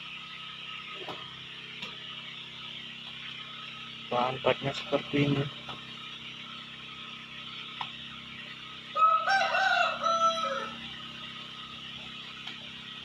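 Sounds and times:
rooster crowing: 0:08.9 - 0:11.1.

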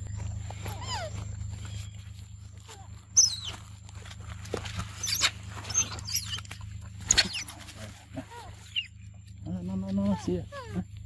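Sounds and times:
macaques squeaky calls: 0:00.5 - 0:03.8, 0:04.8 - 0:09.3, 0:10.1 - 0:11.0.

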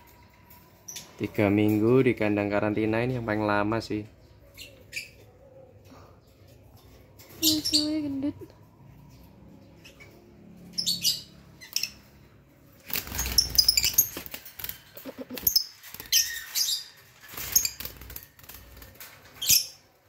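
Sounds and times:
lovebirds chirping: 0:03.2 - 0:20.0
wire cage rattling: 0:11.4 - 0:20.0
wings flapping: 0:12.8 - 0:19.4.

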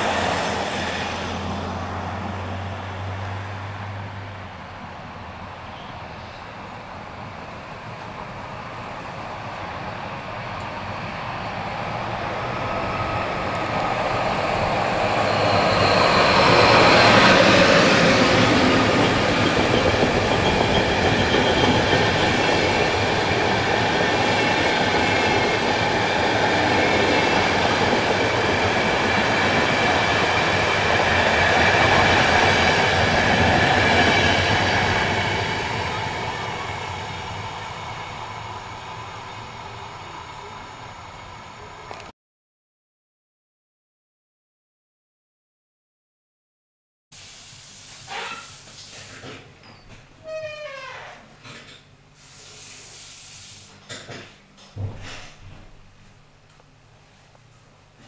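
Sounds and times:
passenger train passing at speed: 0:00.0 - 0:42.1.

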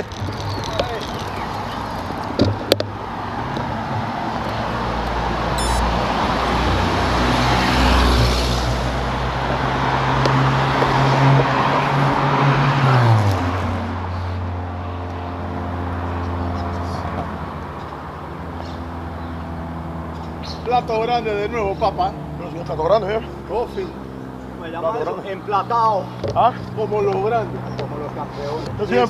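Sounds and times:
vehicles passing on road: 0:00.0 - 0:29.0
low engine drone: 0:05.6 - 0:06.0.

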